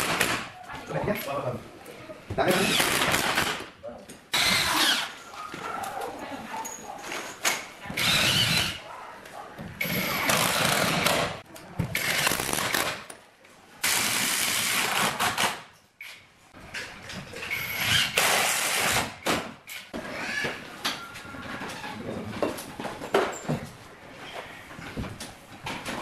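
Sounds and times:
cordless drill driving screws into wood: 0:04.4 - 0:05.1, 0:17.6 - 0:19.4.

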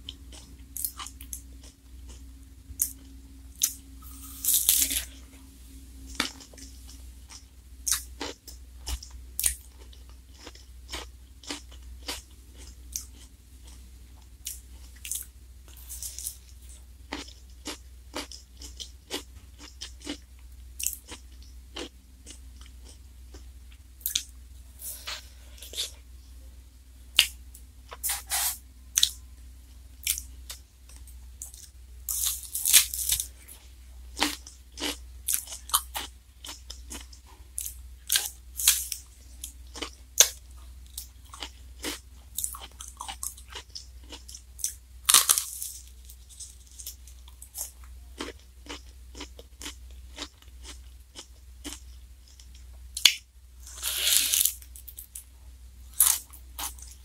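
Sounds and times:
crunching wafer cone: 0:31.5 - 0:33.4, 0:41.0 - 0:55.2, 0:55.9 - 0:57.0.

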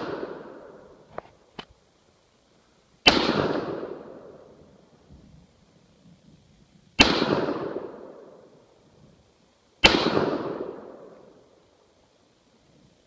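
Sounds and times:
rifle shots: 0:00.0 - 0:00.9, 0:03.0 - 0:04.5, 0:07.0 - 0:08.6, 0:09.8 - 0:11.4.

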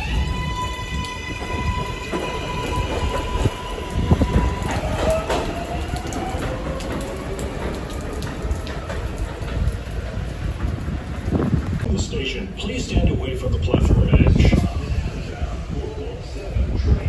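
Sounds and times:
steel wheels clattering on track: 0:00.0 - 0:11.9
electric train whine: 0:00.0 - 0:17.0.

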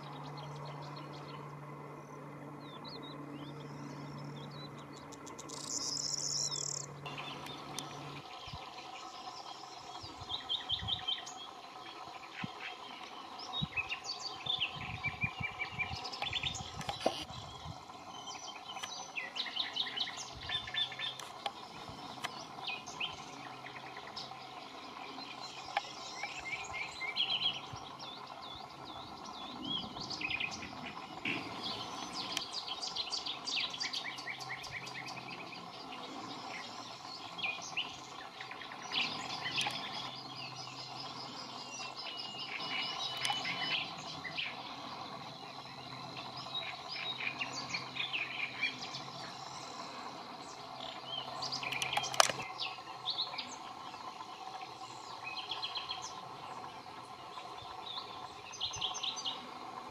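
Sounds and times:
birds chirping and trilling: 0:00.0 - 0:59.9
sharp click: 0:51.7 - 0:52.5.

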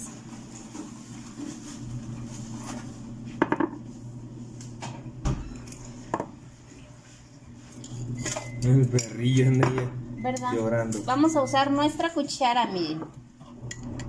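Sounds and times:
dishes clinking and knocking: 0:03.4 - 0:03.8, 0:08.2 - 0:10.0.

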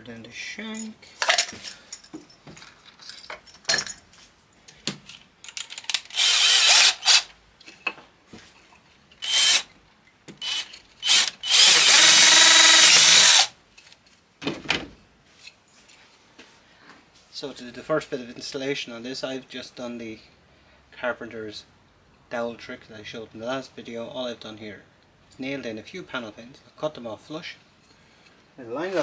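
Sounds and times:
cordless drill boring wood: 0:06.1 - 0:07.3, 0:09.2 - 0:09.7, 0:10.4 - 0:13.5.

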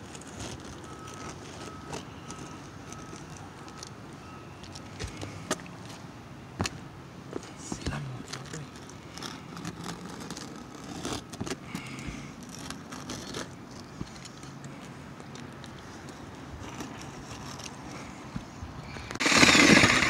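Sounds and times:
hand tools scraping and clicking: 0:07.4 - 0:20.0.

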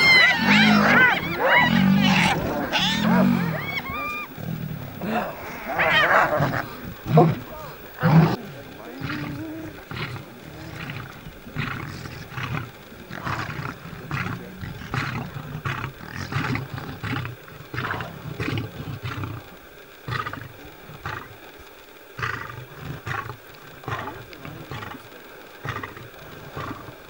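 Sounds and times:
hyenas giving short high calls: 0:00.0 - 0:21.3
lion growling low: 0:00.0 - 0:27.0.

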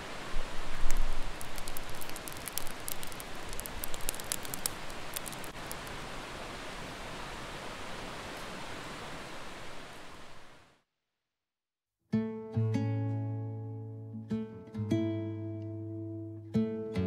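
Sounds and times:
campfire crackling and popping: 0:00.7 - 0:06.0.

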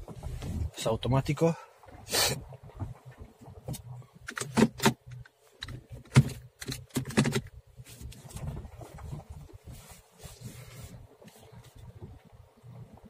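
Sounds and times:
light clicks and knocks in car: 0:01.9 - 0:09.7.

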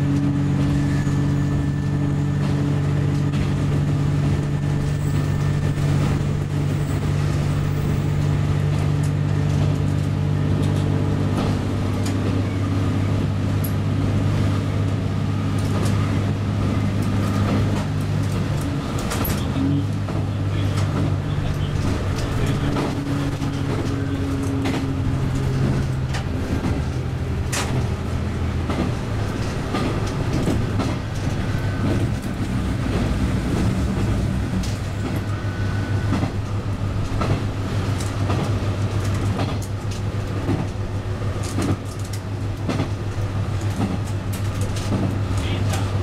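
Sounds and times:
diesel engine drone: 0:00.0 - 0:46.0
wheels clicking on rails: 0:00.0 - 0:46.0.

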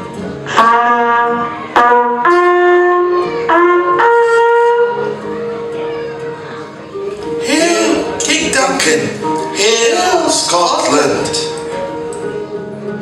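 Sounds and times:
horn fanfare: 0:00.5 - 0:05.3, 0:07.4 - 0:09.0.

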